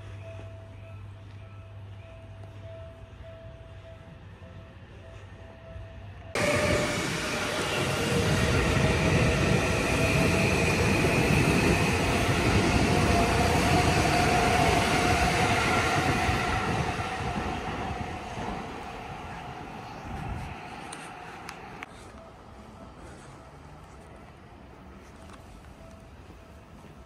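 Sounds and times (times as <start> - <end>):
faint train whine: 0.0 - 27.0
train wheels rumbling on rails: 6.4 - 23.0.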